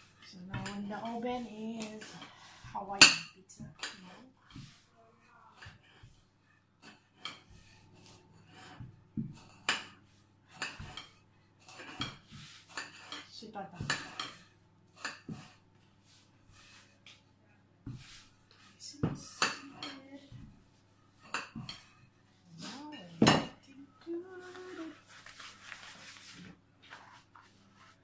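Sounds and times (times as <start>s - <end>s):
rolling pin rolling dough: 0.0s - 28.0s
kitchen knocks and clinks: 23.1s - 23.7s.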